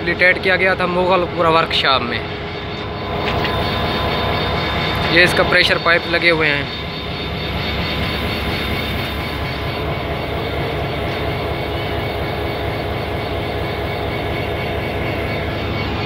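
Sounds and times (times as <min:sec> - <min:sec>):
diesel locomotive idling: 0:00.0 - 0:16.0.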